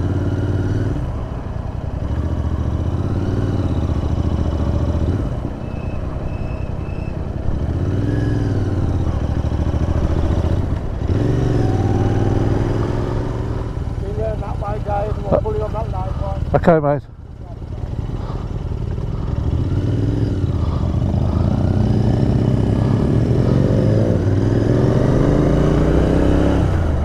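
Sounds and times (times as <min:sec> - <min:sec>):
motorcycle engine revving: 0:00.0 - 0:27.0
wind rushing: 0:20.8 - 0:27.0.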